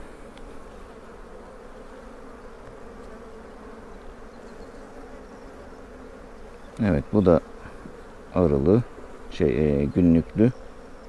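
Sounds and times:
honeybees buzzing: 0:00.0 - 0:11.0.

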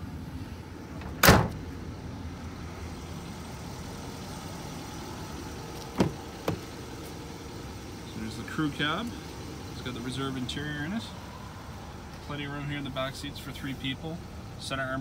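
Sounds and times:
door latch clicks: 0:01.0 - 0:01.6
pickup truck door slam: 0:01.0 - 0:01.6, 0:06.0 - 0:06.6.

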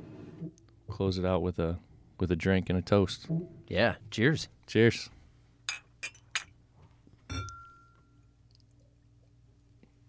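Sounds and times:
cups clinking: 0:05.7 - 0:06.6, 0:07.3 - 0:08.0.

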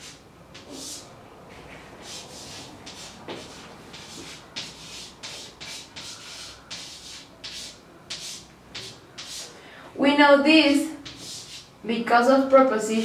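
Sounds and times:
chalk scratching on chalkboard: 0:00.0 - 0:01.1, 0:01.7 - 0:09.6, 0:11.0 - 0:11.7.

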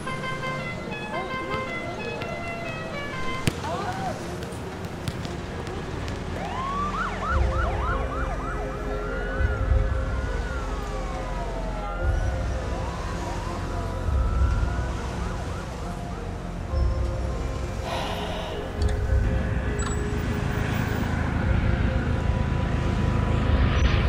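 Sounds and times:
sirens wailing: 0:00.0 - 0:23.8
siren yelp: 0:06.4 - 0:16.6.

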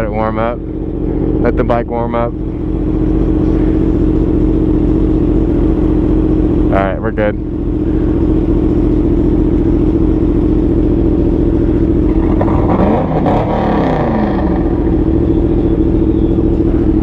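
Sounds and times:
motorcycle engine idling: 0:00.0 - 0:17.0
engine revving up and down: 0:12.0 - 0:17.0.

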